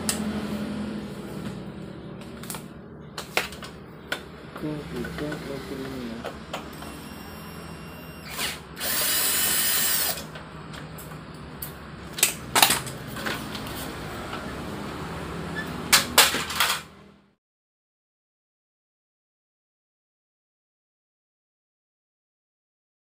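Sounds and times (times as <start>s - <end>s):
copier low hum: 0.0s - 17.3s
cordless screwdriver running: 8.2s - 10.3s.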